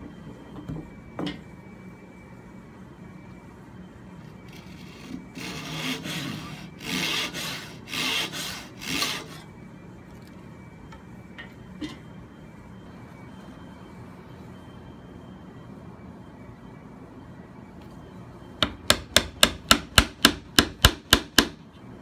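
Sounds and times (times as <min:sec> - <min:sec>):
hand saw cutting wood: 0:05.4 - 0:09.4.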